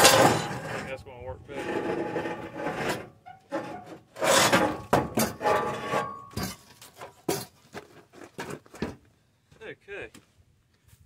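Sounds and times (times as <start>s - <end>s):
rusty steel scraping and clanking: 0.0s - 8.7s.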